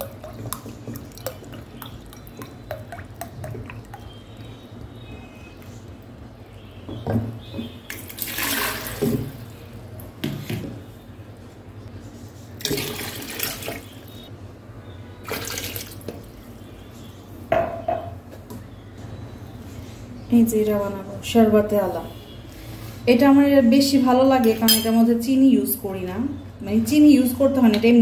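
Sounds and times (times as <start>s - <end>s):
water pouring into plastic pitcher: 0.0s - 4.6s, 7.9s - 9.4s, 12.6s - 13.9s, 15.2s - 16.0s.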